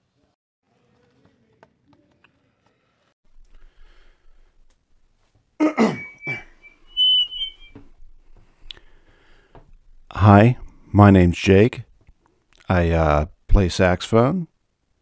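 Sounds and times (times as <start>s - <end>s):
man clearing his throat: 5.6s - 6.4s
thin high wavering tone: 5.8s - 7.8s.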